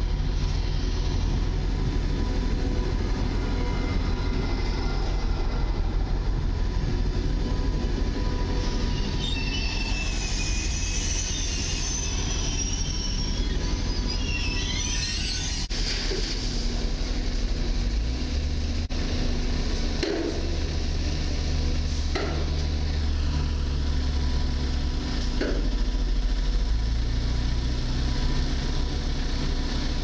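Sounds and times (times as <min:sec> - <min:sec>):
train wheels rumbling on rail: 0:00.0 - 0:30.0
high wheel squeals: 0:07.5 - 0:15.8.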